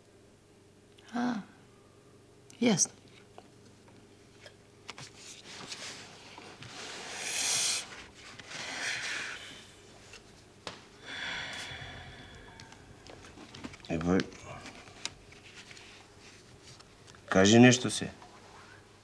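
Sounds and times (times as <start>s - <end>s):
person breathing noisily: 6.9s - 9.8s, 11.0s - 13.4s.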